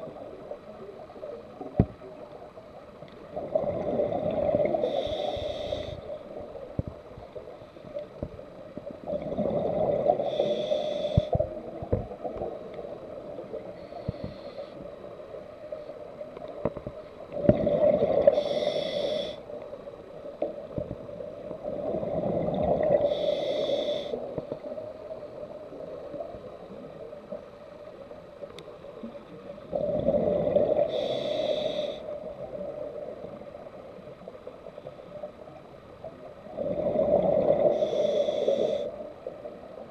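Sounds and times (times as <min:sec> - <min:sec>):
exhaled bubbles rumbling: 0:03.2 - 0:04.9, 0:08.2 - 0:10.2, 0:16.7 - 0:18.4, 0:20.7 - 0:23.1, 0:29.6 - 0:31.0, 0:36.4 - 0:37.7
regulator hiss: 0:04.8 - 0:06.2, 0:10.2 - 0:11.4, 0:18.3 - 0:19.5, 0:23.0 - 0:24.3, 0:30.8 - 0:32.2, 0:37.6 - 0:39.0.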